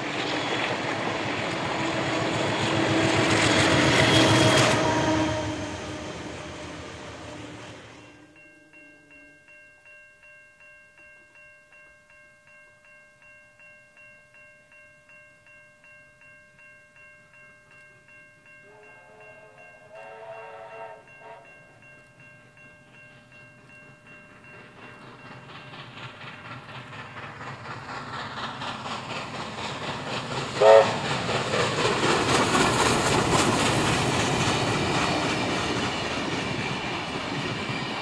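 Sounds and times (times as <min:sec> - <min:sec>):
warning bell dinging: 0:07.8 - 0:25.4.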